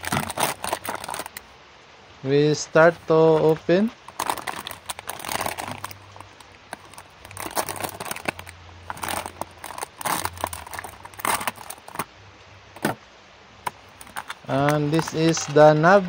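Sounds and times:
plastic bag crinkling: 0:00.0 - 0:01.5, 0:02.8 - 0:12.1, 0:12.7 - 0:13.0, 0:13.6 - 0:16.0.

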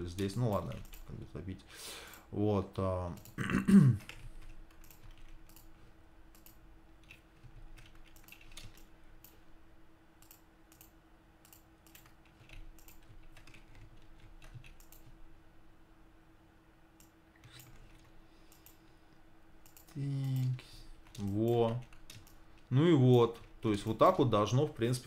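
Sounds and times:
faint steady hum: 0:00.0 - 0:25.0
keyboard and mouse clicks: 0:00.1 - 0:01.2, 0:04.0 - 0:09.4, 0:10.2 - 0:15.2, 0:17.0 - 0:18.8, 0:19.6 - 0:22.7.

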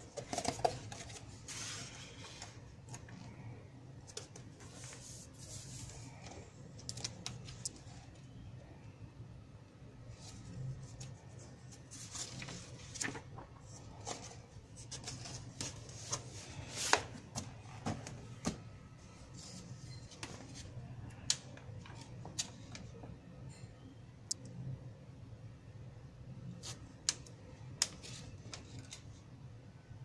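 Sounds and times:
magazine pages rustling: 0:10.9 - 0:18.6.

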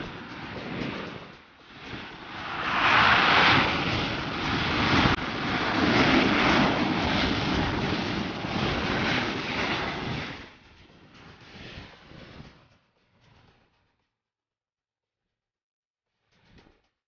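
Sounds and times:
jet engines rushing: 0:00.0 - 0:10.8.

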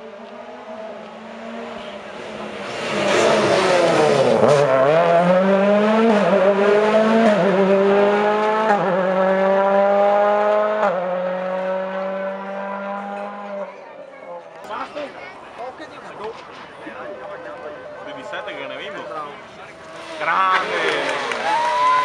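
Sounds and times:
rally car passing at full throttle: 0:00.0 - 0:13.8, 0:16.3 - 0:22.0
engine upshifting: 0:00.1 - 0:13.6, 0:19.5 - 0:22.0.

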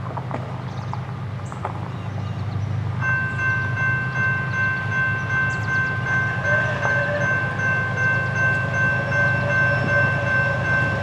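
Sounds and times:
train rumble: 0:00.0 - 0:11.0
locomotive air horn chord: 0:03.5 - 0:11.0.

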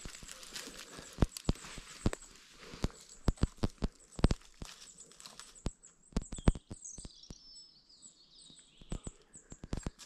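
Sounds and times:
dry twigs crackling: 0:00.0 - 0:06.3
birds chirping: 0:00.0 - 0:10.0.

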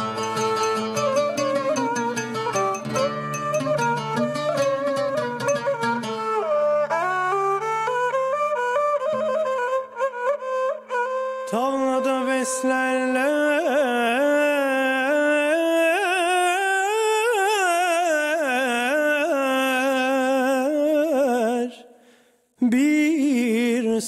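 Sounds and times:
man singing melismatic vocal: 0:11.5 - 0:21.9, 0:22.6 - 0:24.0.

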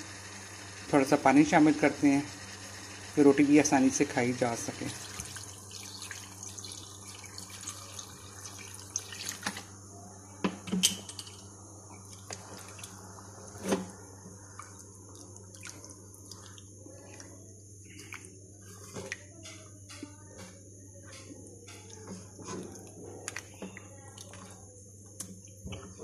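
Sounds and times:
water splashing and sizzling in pan: 0:04.6 - 0:09.6.

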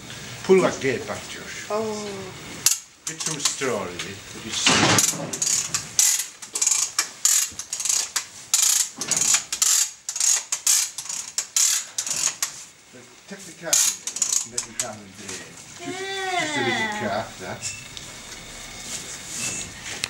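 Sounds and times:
jack ratcheting metallic clicks: 0:02.6 - 0:03.6, 0:05.0 - 0:12.6, 0:13.7 - 0:15.0.

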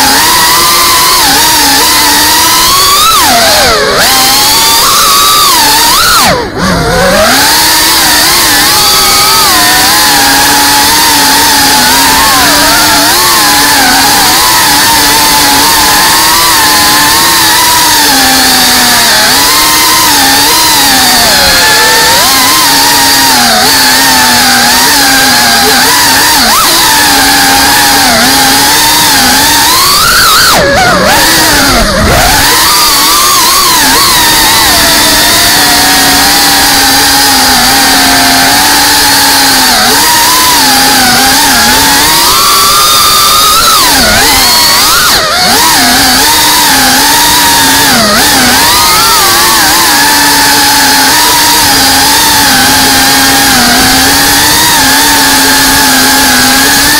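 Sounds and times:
drone motors whining: 0:00.0 - 0:56.9.

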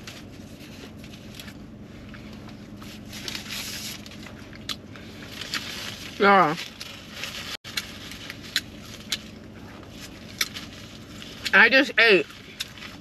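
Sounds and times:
faint steady hum: 0:00.0 - 0:13.0
paper crinkling and rustling: 0:02.8 - 0:11.4.

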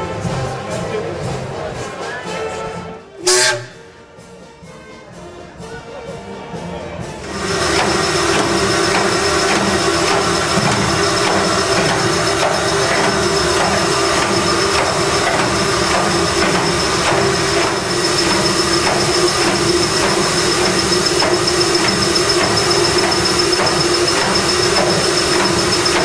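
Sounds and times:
steam engine mechanical din: 0:03.2 - 0:03.7, 0:07.2 - 0:26.0
thin high whine: 0:07.3 - 0:26.0.

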